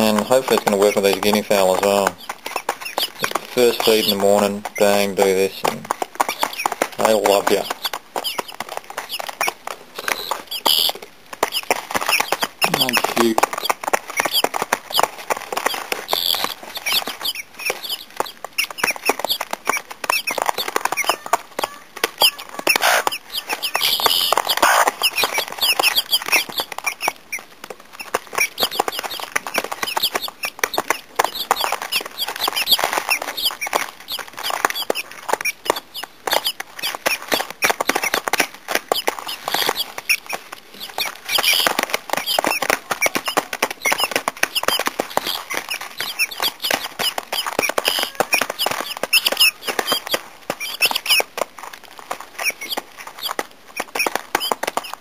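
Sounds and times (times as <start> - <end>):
beaks clicking on seed: 0.0 - 55.0
guinea fowl chicks peeping: 0.0 - 55.0.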